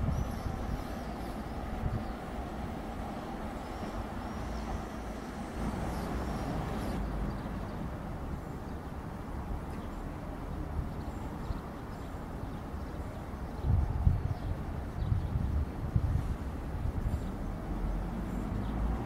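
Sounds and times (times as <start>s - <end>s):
distant electric trains rumbling: 0.0s - 15.0s.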